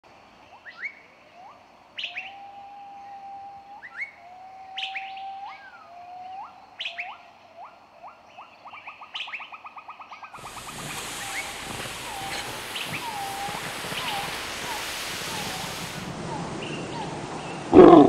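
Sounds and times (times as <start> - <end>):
bird whistling song: 0.7 - 2.4, 4.8 - 5.8, 10.4 - 17.7.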